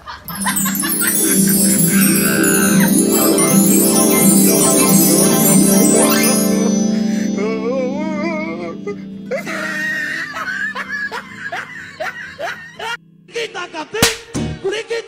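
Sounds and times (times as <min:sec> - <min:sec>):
background music wavering melody: 0:00.2 - 0:13.3.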